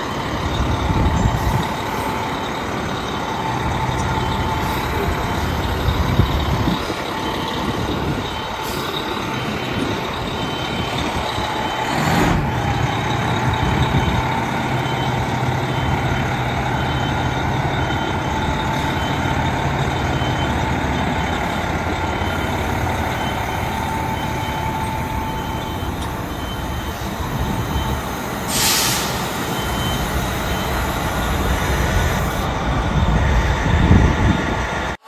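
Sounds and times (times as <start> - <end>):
reversing beeper: 0.0 - 32.5
diesel engine running: 0.0 - 35.0
air brakes hissing: 0.9 - 9.9, 22.3 - 32.5.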